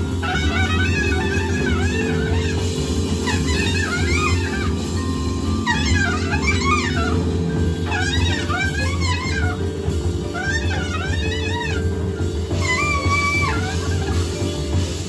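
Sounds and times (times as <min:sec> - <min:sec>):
clarinet wailing lines: 0:00.0 - 0:15.0
double bass: 0:00.0 - 0:15.0
drums: 0:00.0 - 0:15.0.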